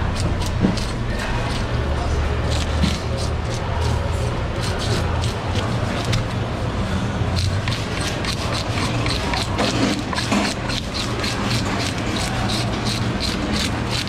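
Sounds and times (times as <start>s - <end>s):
fish scaler scraping scales: 0.0s - 14.0s
steady low hum: 0.0s - 14.0s.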